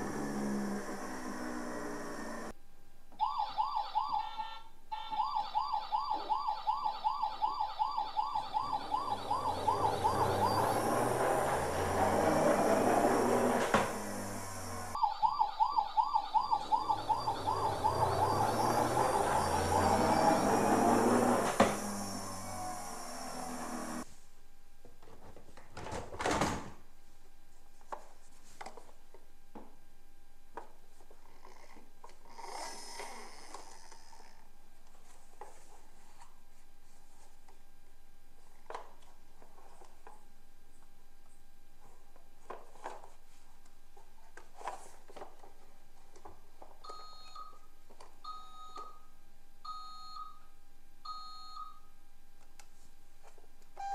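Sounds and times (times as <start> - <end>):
toy fire truck siren warbling: 3.2 - 13.6, 14.9 - 23.5.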